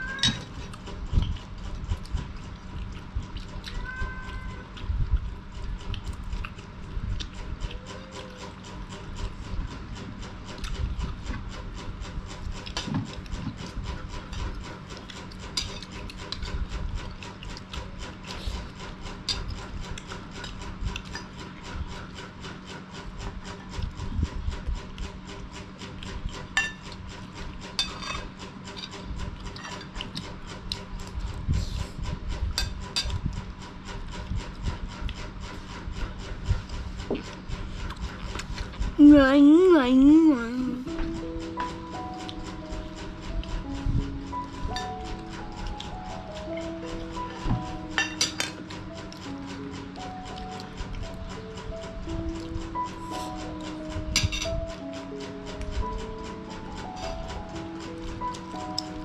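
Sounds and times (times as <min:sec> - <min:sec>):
chewing: 0:00.5 - 0:09.5, 0:12.2 - 0:21.4, 0:33.0 - 0:39.0, 0:52.3 - 0:52.5.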